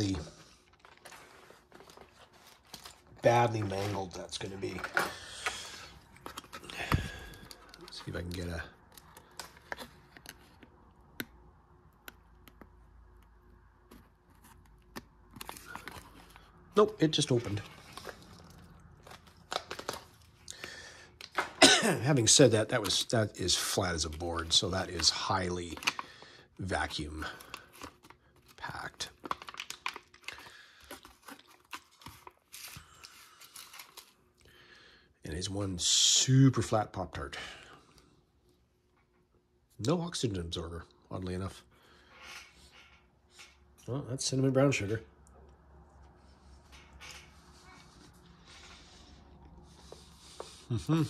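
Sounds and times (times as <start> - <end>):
wrapper crinkling: 14.4 - 21.4, 22.2 - 34.4
sharp clicks of wrapper: 29.0 - 32.3.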